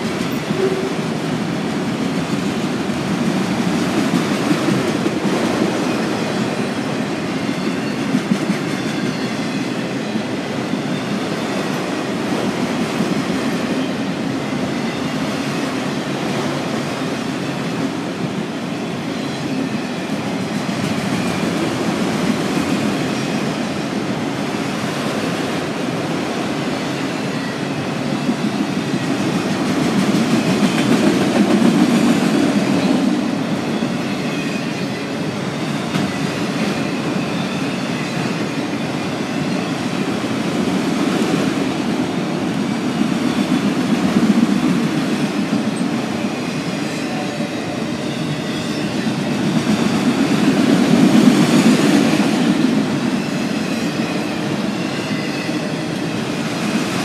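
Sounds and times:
train wheels clattering on rails: 0:00.0 - 0:57.0.

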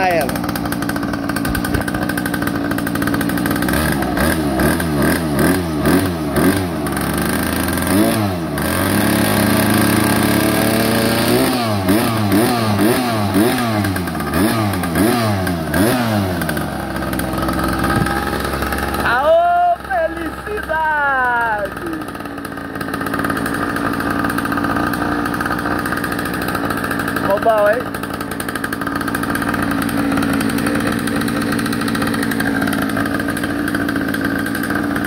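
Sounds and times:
small engine revving: 0:00.0 - 0:35.0.

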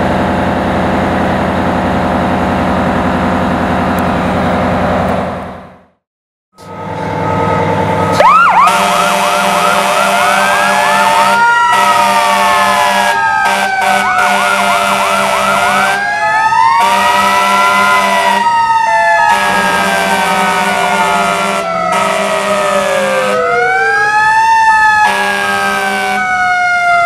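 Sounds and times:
electronic siren yelping: 0:06.6 - 0:27.0
mechanical siren wailing: 0:06.6 - 0:27.0
air horn blasts: 0:08.1 - 0:16.0, 0:16.8 - 0:18.5, 0:19.2 - 0:23.5, 0:25.0 - 0:26.3.

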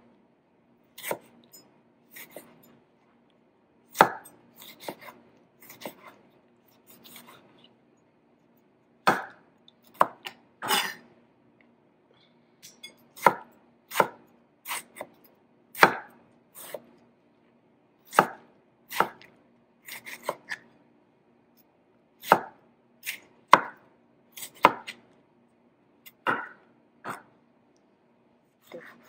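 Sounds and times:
knife chopping on cutting board: 0:01.0 - 0:01.4, 0:02.1 - 0:02.6, 0:03.9 - 0:06.2, 0:09.0 - 0:09.4, 0:10.0 - 0:10.9, 0:13.2 - 0:16.9, 0:18.1 - 0:19.3, 0:19.9 - 0:20.6, 0:22.2 - 0:23.8, 0:24.4 - 0:25.0, 0:26.1 - 0:27.3, 0:28.6 - 0:29.0.

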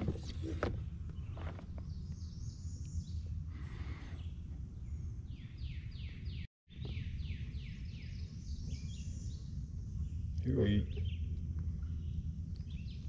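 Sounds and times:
steady low rumble: 0:00.0 - 0:13.0
songbird singing: 0:00.2 - 0:13.0.

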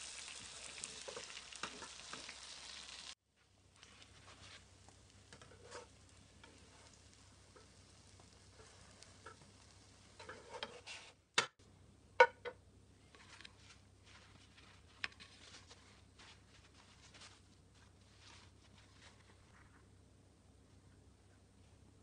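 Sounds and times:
butter crackling in frying pan: 0:00.0 - 0:10.9
spatula clacking in pan: 0:05.3 - 0:10.8
paper towel rustling: 0:13.2 - 0:19.9.

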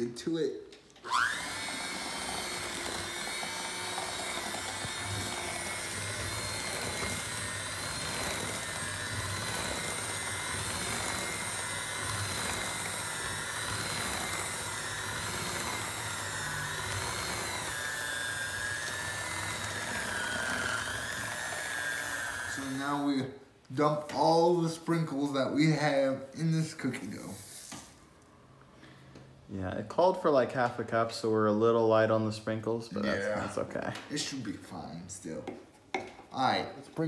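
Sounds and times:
electric hand mixer running: 0:01.0 - 0:23.2.

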